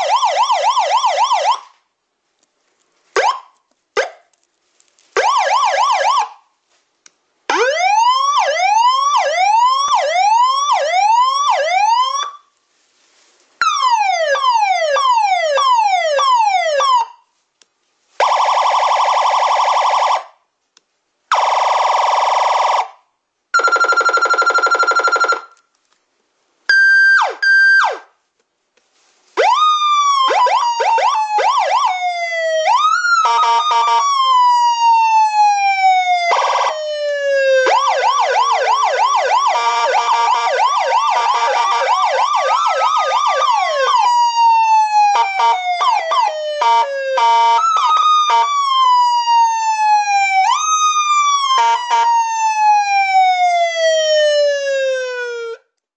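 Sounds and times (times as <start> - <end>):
steady horn-like siren tones: 29.4 - 55.5.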